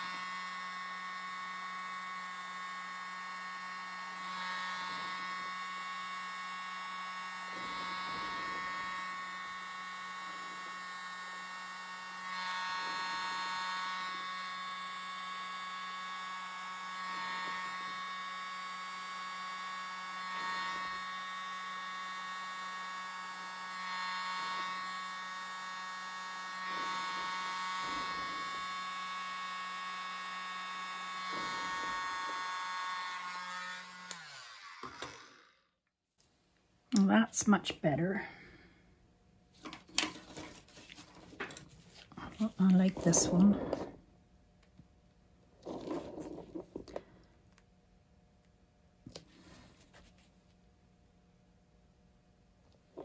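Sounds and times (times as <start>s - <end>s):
mini blower buzzing whine: 0.0s - 35.8s, 39.6s - 44.0s, 45.6s - 47.3s.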